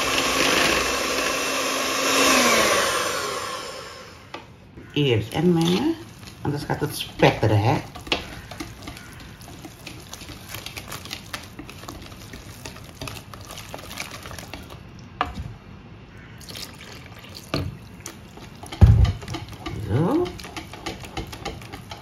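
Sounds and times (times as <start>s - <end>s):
batter being stirred: 4.8s - 22.0s.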